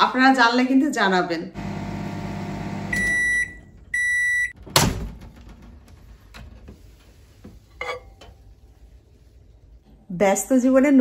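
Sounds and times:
microwave oven humming: 1.6s - 4.5s
long microwave beeps: 1.6s - 4.6s.

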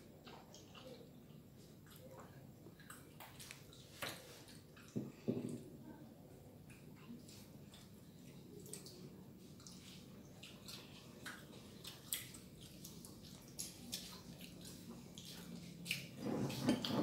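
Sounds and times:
wet chewing smacks: 6.6s - 16.2s.

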